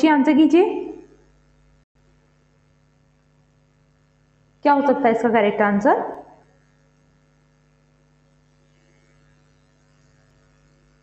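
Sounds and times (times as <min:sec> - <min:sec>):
woman's voice: 0:00.0 - 0:01.1, 0:04.6 - 0:06.4
faint electrical hum: 0:00.0 - 0:11.0.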